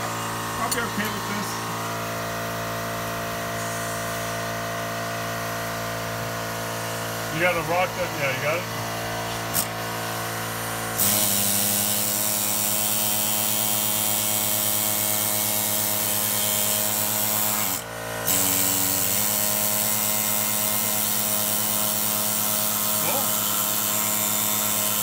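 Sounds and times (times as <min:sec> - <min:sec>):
air die grinder scraping metal: 0:00.1 - 0:02.0, 0:15.4 - 0:25.0.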